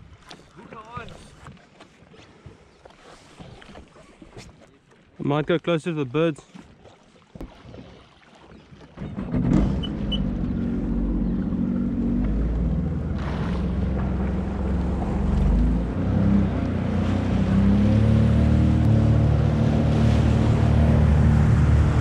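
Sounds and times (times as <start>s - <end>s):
water rushing: 7.4s - 22.0s
jet ski engine droning: 8.8s - 22.0s.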